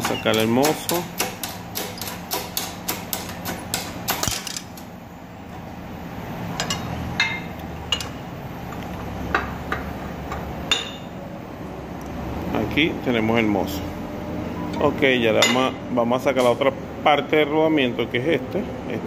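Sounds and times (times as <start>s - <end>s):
metal parts clinking: 4.2s - 4.8s.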